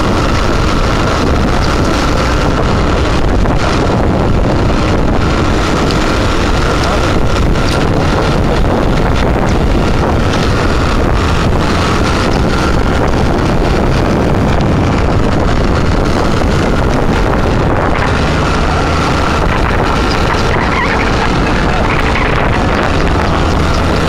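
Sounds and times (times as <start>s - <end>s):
vehicle running: 0.0s - 24.0s
wind rumble on microphone: 0.0s - 24.0s
horses trotting: 17.9s - 24.0s.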